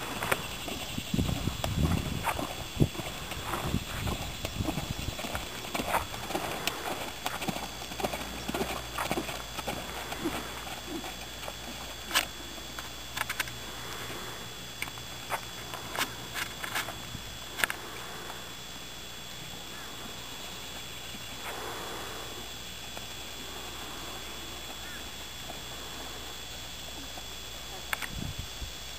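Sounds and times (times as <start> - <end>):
horse hoofbeats on sand: 0.0 - 12.1
sharp hoof clicks: 0.1 - 12.3.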